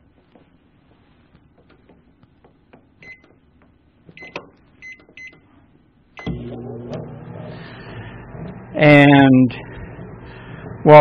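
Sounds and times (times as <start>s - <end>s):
microwave oven humming: 1.1s - 11.0s
microwave keypad beeps: 3.0s - 3.4s, 4.2s - 5.5s, 6.2s - 6.4s.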